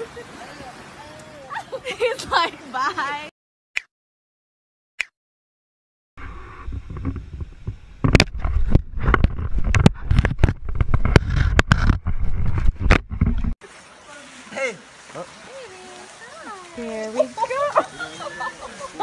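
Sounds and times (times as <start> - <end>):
camera handling knocks and bumps: 6.9 - 13.5.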